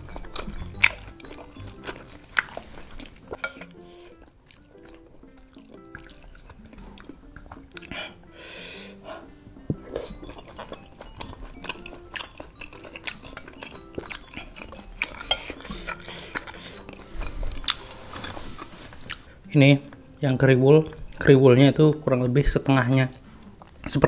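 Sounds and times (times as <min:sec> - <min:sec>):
wet chewing: 0:00.0 - 0:20.1
soft background music: 0:00.0 - 0:24.0
cutlery scraping ceramic bowl: 0:03.3 - 0:04.1.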